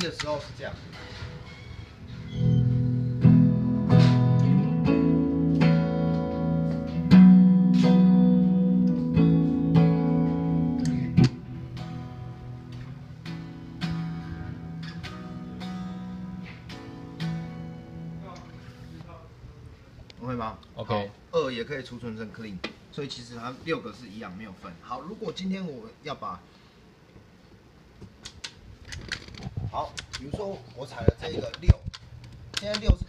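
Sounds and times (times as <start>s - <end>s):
electric guitar chords strummed: 2.4s - 18.6s
sharp click: 28.2s - 30.4s, 31.5s - 33.0s.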